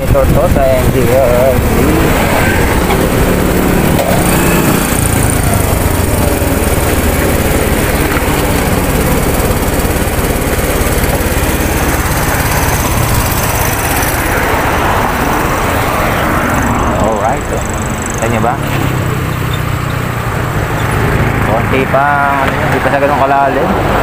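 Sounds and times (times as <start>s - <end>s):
wind rushing over microphone: 0.0s - 18.0s
motorcycle engine running: 0.0s - 23.9s.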